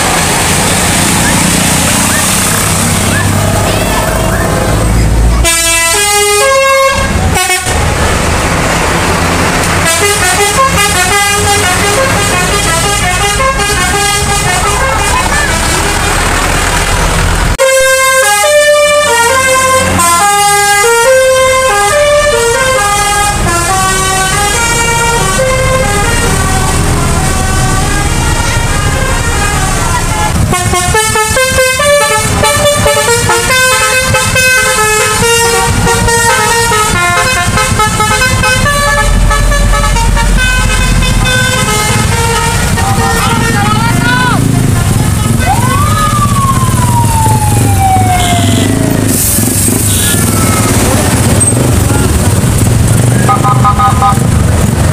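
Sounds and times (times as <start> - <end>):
road traffic: 0.0 - 54.9
multi-tone bus horn tune: 0.1 - 8.2, 8.8 - 45.9, 48.0 - 54.8.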